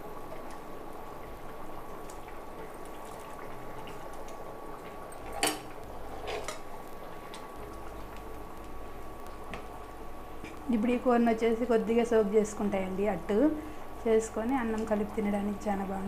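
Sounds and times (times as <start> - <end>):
gravy bubbling and sloshing: 0.0 - 11.2.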